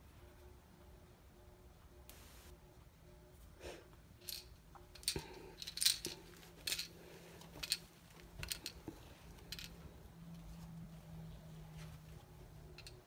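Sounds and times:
plastic toy clicking and rattling: 4.2 - 6.9, 7.6 - 7.8, 8.4 - 9.8, 12.7 - 13.0.

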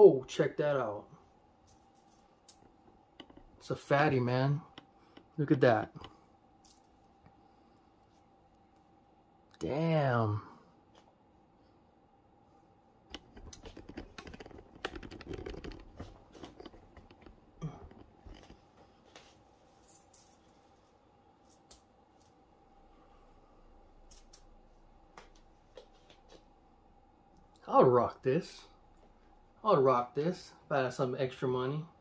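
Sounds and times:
chain clicking and rustling: 1.6 - 3.7, 6.6 - 7.1, 13.2 - 18.6, 19.5 - 22.4.

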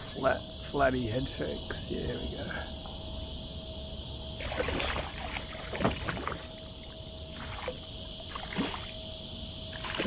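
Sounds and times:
fish splashing in water: 4.4 - 9.0, 9.7 - 10.0.

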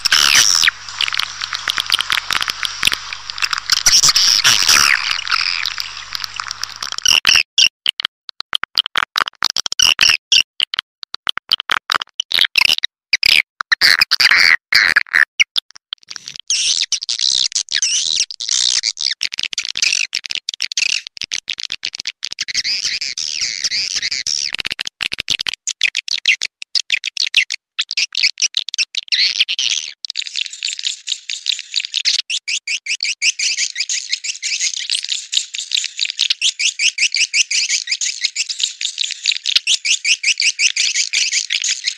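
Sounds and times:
recorded swiftlet chirps and trills: 0.0 - 7.1.

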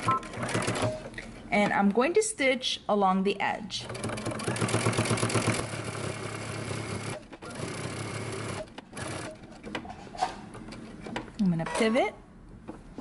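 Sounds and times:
sewing machine running: 3.9 - 9.5.

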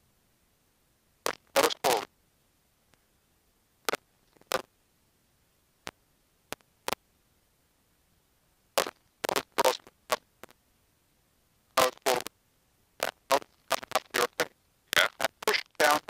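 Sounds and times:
headset intercom noise bursts: 1.3 - 2.1, 8.8 - 10.2, 11.8 - 12.3, 13.0 - 16.0.

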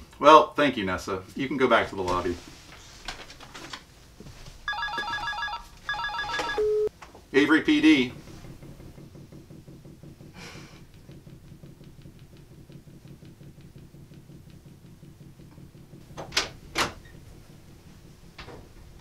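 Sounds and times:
steady low hum: 5.7 - 19.0.

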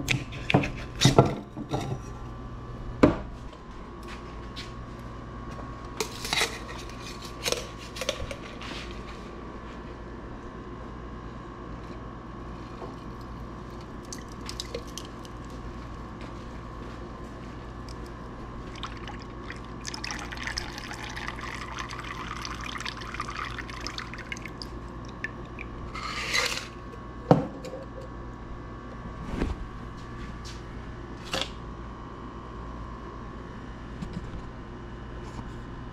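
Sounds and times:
faint steady hum: 0.0 - 35.9
liquid pouring into glass: 18.6 - 25.8.

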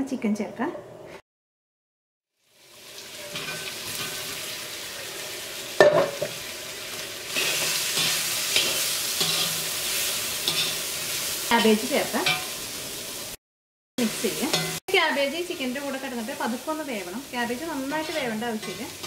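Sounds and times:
chicken frying in oil: 2.3 - 13.4, 14.0 - 19.0
metal spatula stirring in wok: 3.2 - 4.4, 7.3 - 11.5, 12.2 - 12.6, 14.2 - 14.8, 17.8 - 19.0.

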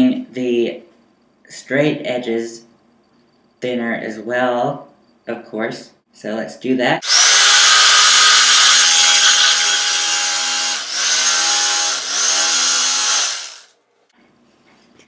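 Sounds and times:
electric knife cutting foam: 7.0 - 13.8.

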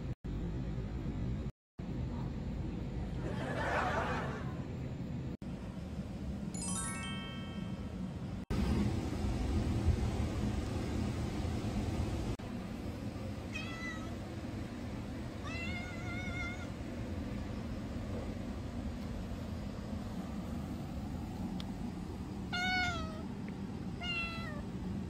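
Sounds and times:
cat meowing: 13.5 - 14.2, 15.4 - 16.7, 22.5 - 23.3, 24.0 - 24.6.

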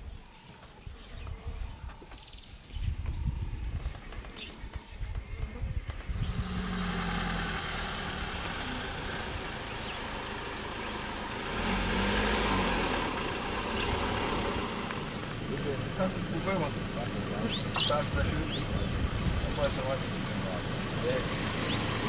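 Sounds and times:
vehicle engine idling: 6.0 - 22.0.

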